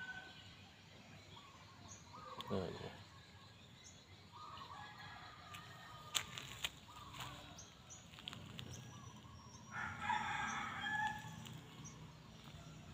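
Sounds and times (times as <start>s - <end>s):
small birds chirping: 0.0s - 12.9s
rooster crowing: 9.7s - 11.4s.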